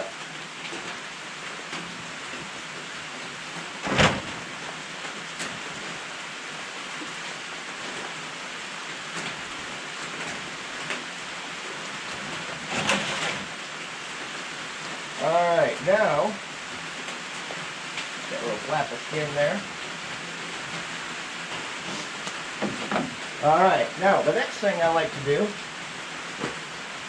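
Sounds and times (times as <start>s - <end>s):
rain on a metal roof: 0.0s - 27.0s
knocks: 22.6s - 23.2s.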